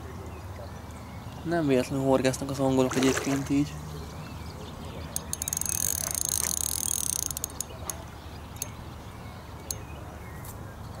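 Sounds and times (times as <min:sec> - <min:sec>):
fishing reel ratchet clicking: 0:05.1 - 0:08.8, 0:09.6 - 0:09.9.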